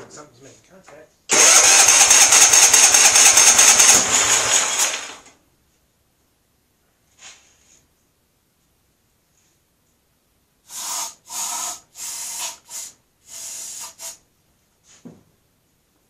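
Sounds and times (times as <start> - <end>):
aerosol spray bursts: 1.3 - 4.8, 10.7 - 14.2.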